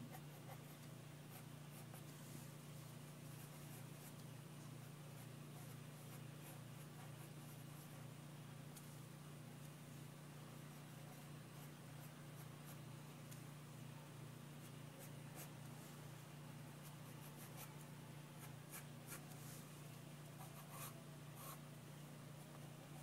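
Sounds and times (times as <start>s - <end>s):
pencil scratching on paper: 18.4s - 19.3s, 20.4s - 21.6s.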